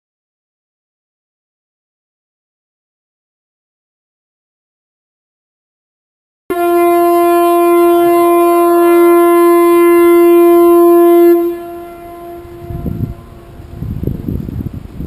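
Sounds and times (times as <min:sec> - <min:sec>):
ship's horn blast: 0:06.5 - 0:15.0
wind rumbling on microphone: 0:06.6 - 0:15.0.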